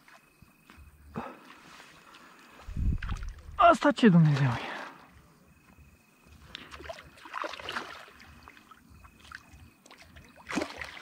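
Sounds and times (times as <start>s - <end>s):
fish splashing in water: 6.6s - 11.0s.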